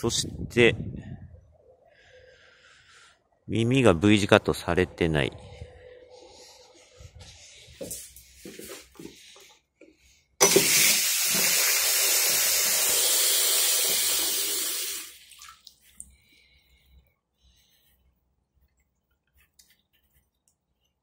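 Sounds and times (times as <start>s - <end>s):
tap water running into basin: 10.4s - 16.1s.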